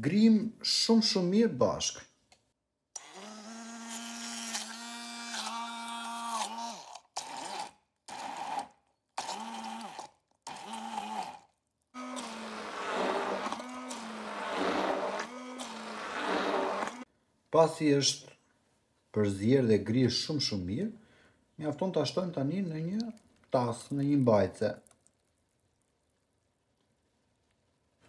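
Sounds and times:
immersion blender whine: 3.0s - 17.1s
liquid churning: 8.1s - 17.1s.

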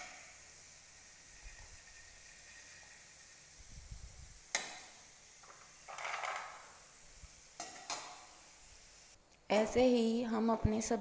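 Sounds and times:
corn frying in oil: 0.0s - 9.8s.

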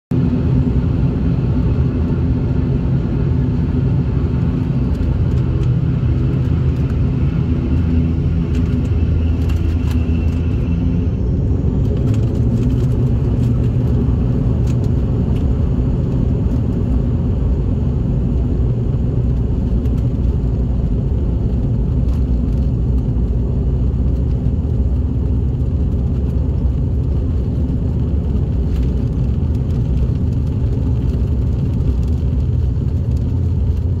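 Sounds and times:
airliner engines droning: 0.1s - 34.0s.

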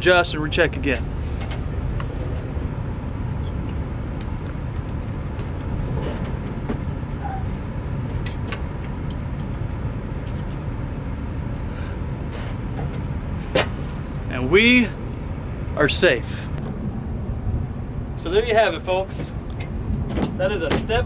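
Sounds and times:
low mechanical rumble: 0.0s - 21.0s.

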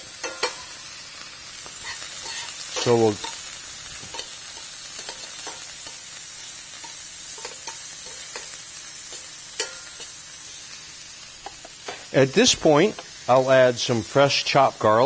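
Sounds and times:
shrimp sizzling in a pan: 0.0s - 15.0s
metal tongs clicking on pan: 0.2s - 0.7s, 1.8s - 6.1s, 6.7s - 10.2s.

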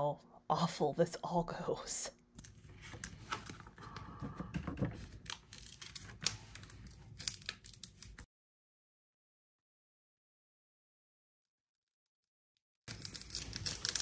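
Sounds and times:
transfer tape crinkling: 5.0s - 8.3s, 12.9s - 14.0s.

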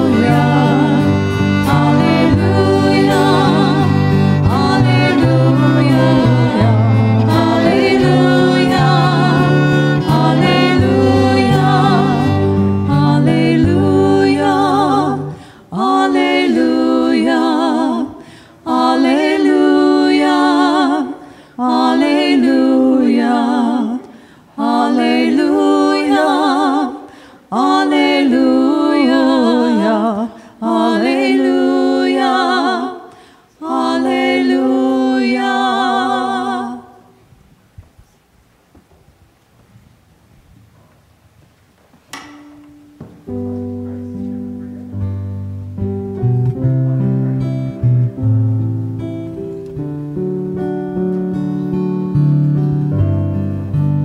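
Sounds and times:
violins: 0.0s - 14.4s
women singing worship song: 0.0s - 37.2s
low bass line: 43.3s - 51.1s.

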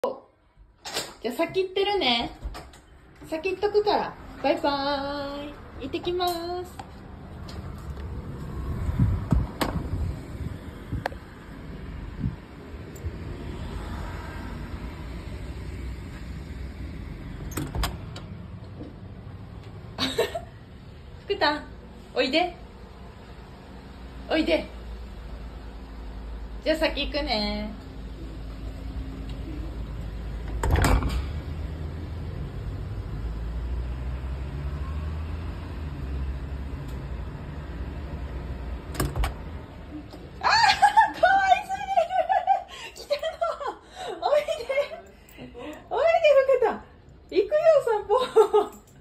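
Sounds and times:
phone microphone handling rumble: 8.8s - 11.2s
door shutting with thud: 17.4s - 18.3s, 30.5s - 31.4s, 38.9s - 39.4s.

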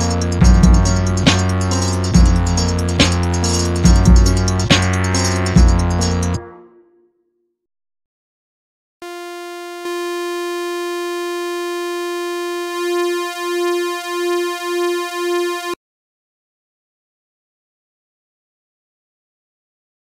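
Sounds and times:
synthesizer lead note: 0.0s - 7.2s, 9.0s - 15.8s.

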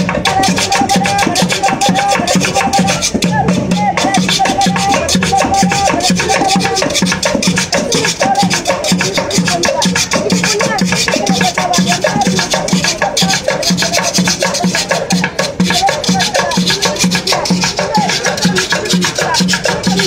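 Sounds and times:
music with steady beat: 0.0s - 20.0s.

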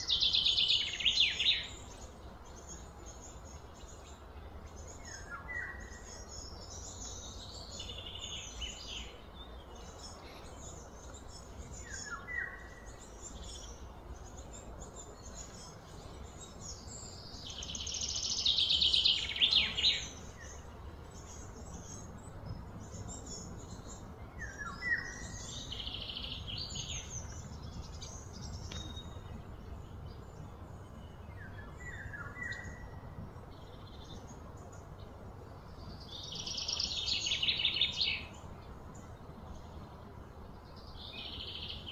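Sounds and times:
birds chirping: 0.0s - 41.9s
steady low rumble: 1.6s - 41.9s.

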